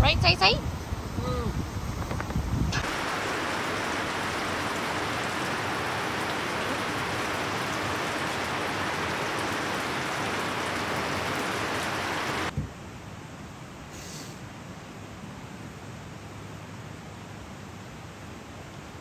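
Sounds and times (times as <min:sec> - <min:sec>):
river water rushing: 0:02.8 - 0:12.5.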